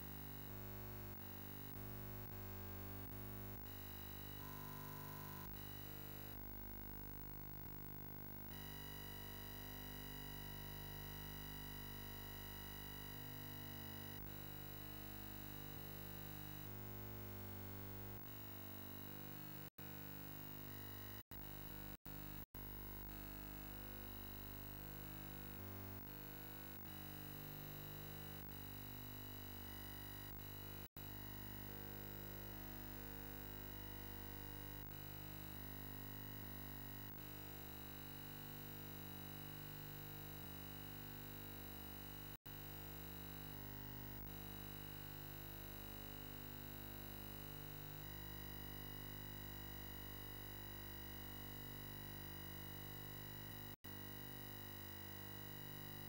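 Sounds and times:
faint electronic hum and buzz: 0:00.0 - 0:43.6, 0:44.2 - 0:56.0.

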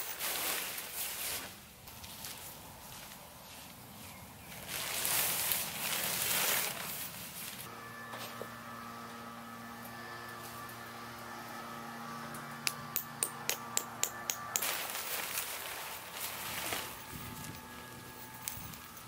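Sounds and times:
nylon tent fabric rustling: 0:00.0 - 0:07.7, 0:14.6 - 0:19.0.

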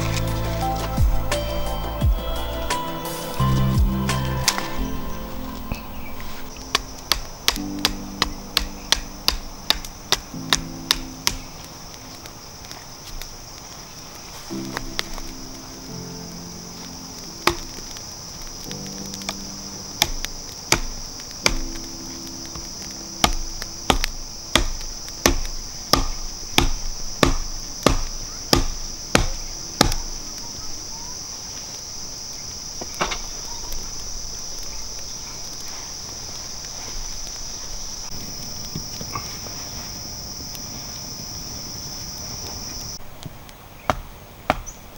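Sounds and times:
forest insects droning: 0:00.0 - 0:44.9
wood being chopped: 0:06.2 - 0:11.6, 0:17.4 - 0:17.8, 0:20.0 - 0:21.8, 0:23.2 - 0:30.2, 0:43.9 - 0:44.8.

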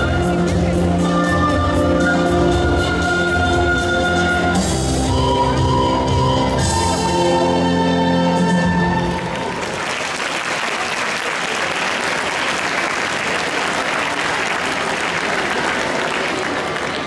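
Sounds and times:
music: 0:00.0 - 0:09.8
audience applause: 0:09.1 - 0:17.0.

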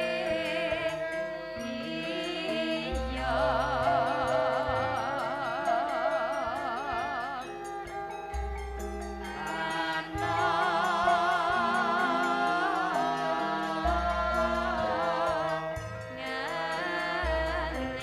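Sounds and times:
woman singing with vibrato: 0:00.0 - 0:08.0, 0:09.2 - 0:18.0.

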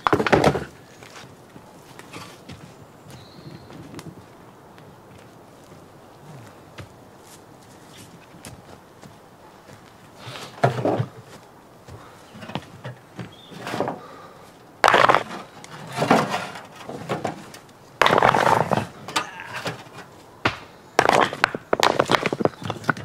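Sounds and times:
stones clattering in metal wheelbarrow: 0:00.0 - 0:00.7, 0:10.5 - 0:11.2, 0:12.4 - 0:14.0, 0:14.8 - 0:20.2, 0:21.0 - 0:23.0.

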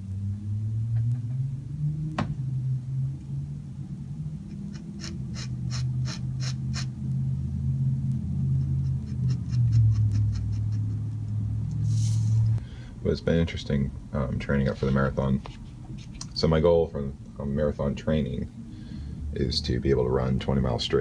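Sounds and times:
low steady drone: 0:00.0 - 0:21.0
pen nib scratching on paper: 0:04.5 - 0:06.9, 0:08.5 - 0:11.0.

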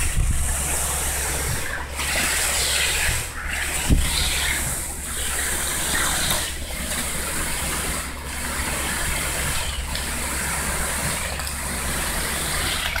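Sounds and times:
concrete pump engine hum: 0:00.0 - 0:13.0
wet concrete gushing from hose: 0:00.0 - 0:13.0.

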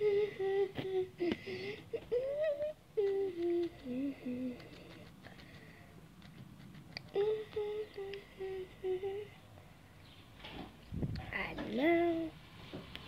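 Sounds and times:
boy humming: 0:00.0 - 0:05.4, 0:07.0 - 0:09.4.

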